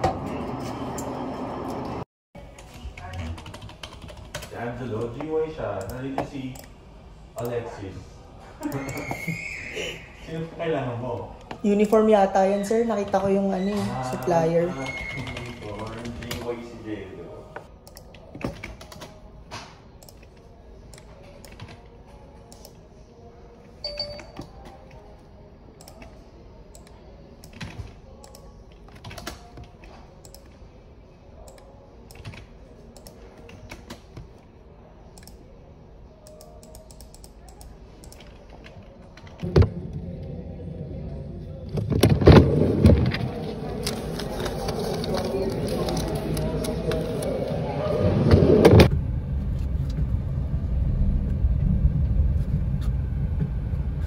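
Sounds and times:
keyboard typing: 3.1 - 4.5, 14.2 - 16.6, 17.8 - 19.2, 20.0 - 22.8, 25.8 - 30.6, 36.2 - 39.4.

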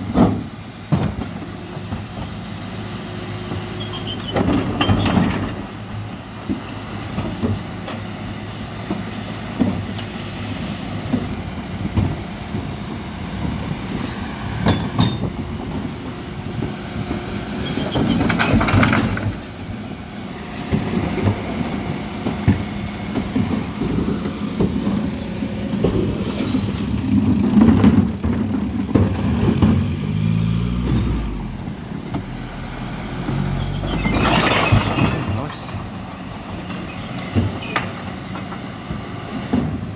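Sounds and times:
truck engine running: 4.5 - 39.9
bins clattering and banging: 14.6 - 16.0, 16.6 - 19.7, 20.6 - 29.9, 33.2 - 39.9.

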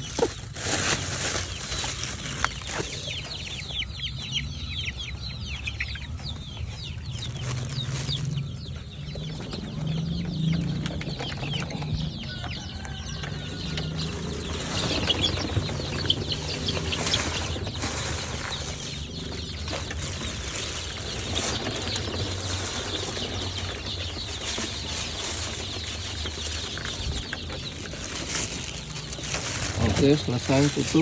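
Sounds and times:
plastic feed bag rustling: 0.0 - 3.6, 7.1 - 8.5, 12.8 - 31.0
chickens clucking: 0.0 - 31.0.

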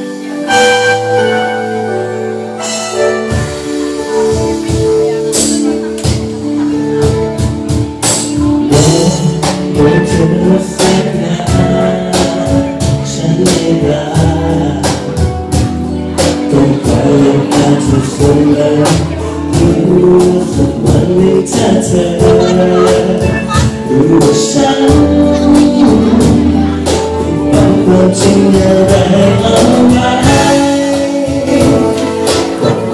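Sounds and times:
live band playing: 0.0 - 32.9
man singing into a microphone: 8.3 - 32.9.

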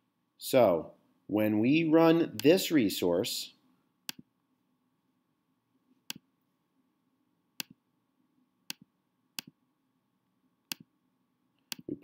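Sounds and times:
computer mouse clicking: 8.7 - 9.6, 10.7 - 10.9, 11.7 - 11.9.

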